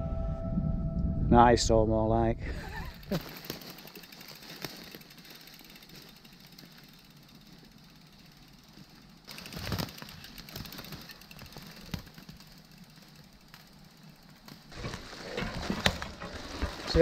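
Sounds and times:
low rumble: 0.0 - 3.0.

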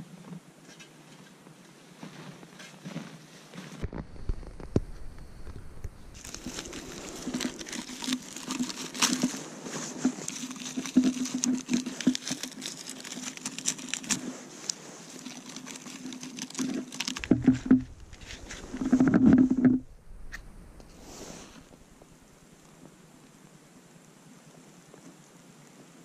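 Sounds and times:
dry bark crackling and rustling: 3.6 - 23.4.

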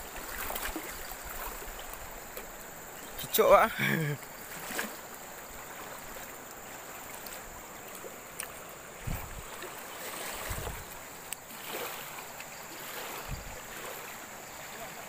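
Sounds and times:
river water rushing: 0.0 - 15.0.

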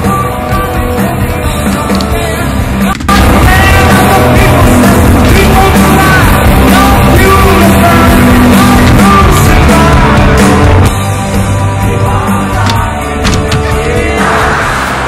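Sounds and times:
loud rock song with singing: 0.0 - 15.0.

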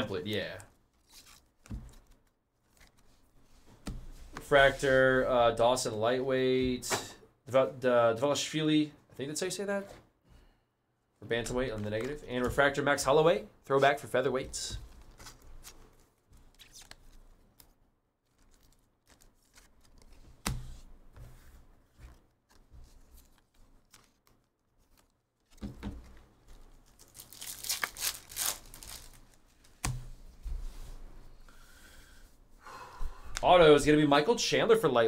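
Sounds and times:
faint handling sounds: 13.8 - 31.5
foil wrapper tearing and crinkling: 26.7 - 29.4.

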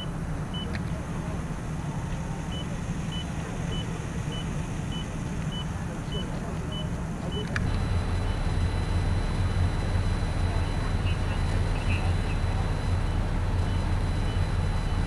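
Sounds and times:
low engine rumble: 0.0 - 15.0
click: 7.3 - 7.8
loud low drone: 7.6 - 15.0.

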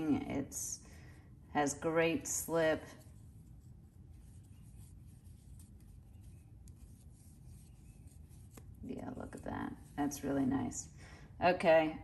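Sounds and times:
low steady hum: 0.0 - 12.0
yarn rubbing on crochet hook: 1.5 - 10.9.

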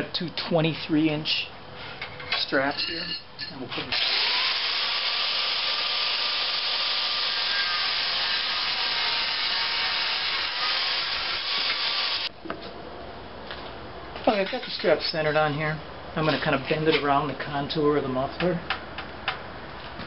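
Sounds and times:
angle grinder cutting steel: 3.9 - 12.3.

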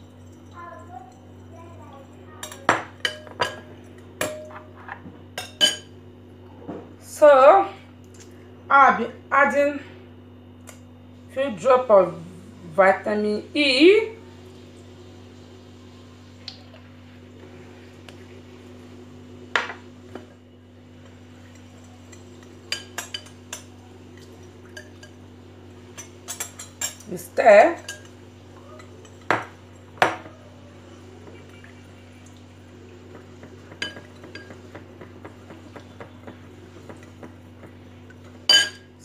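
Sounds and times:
spoon clinking in glass bowl: 38.5 - 38.9.

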